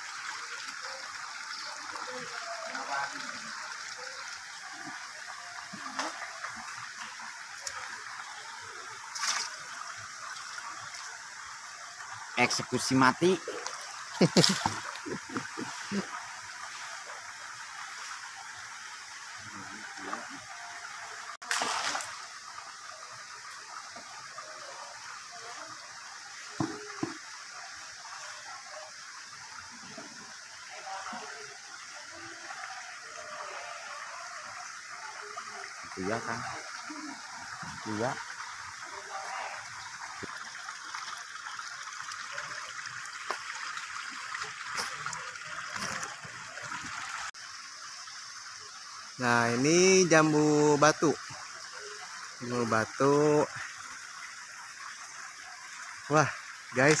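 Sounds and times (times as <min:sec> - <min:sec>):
water trickling: 0:00.0 - 0:57.0
water splashing into bucket: 0:09.1 - 0:09.7, 0:13.4 - 0:16.1, 0:21.4 - 0:22.3
fish splashing into bucket: 0:21.4 - 0:22.2.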